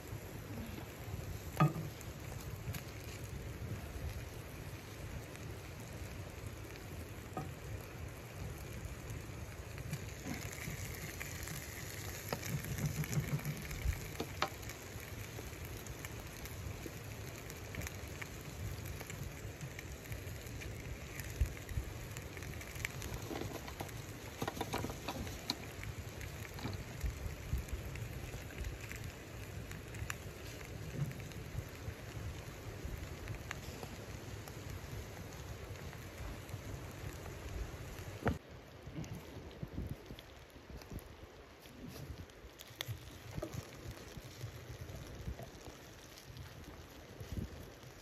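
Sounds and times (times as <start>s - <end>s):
chicken sizzling in a skillet: 0.0s - 38.4s
pops and crackles: 0.0s - 48.0s.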